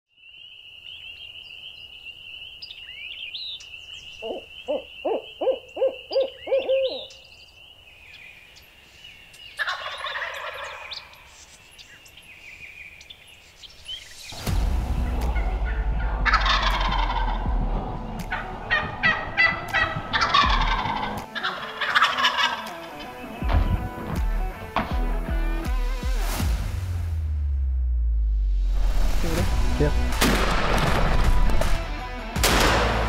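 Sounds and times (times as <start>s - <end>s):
songbird chirps: 0.1s - 24.8s
turkey gobbling: 4.2s - 7.1s, 9.6s - 11.1s, 15.3s - 23.3s
owl hooting: 4.2s - 7.2s.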